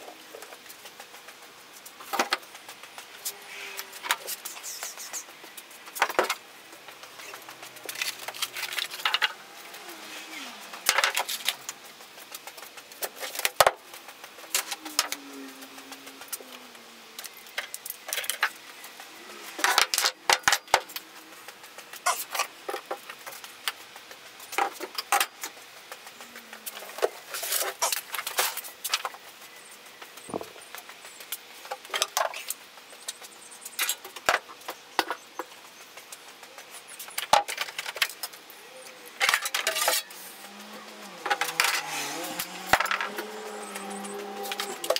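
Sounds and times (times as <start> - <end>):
metal items clinking on workbench: 39.2 - 40.2.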